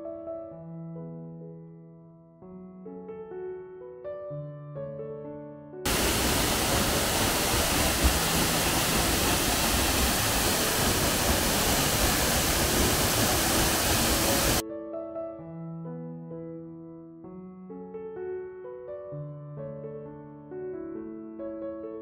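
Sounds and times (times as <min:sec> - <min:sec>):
soft piano music: 0:00.0 - 0:22.0
waterfall rushing: 0:05.9 - 0:14.6.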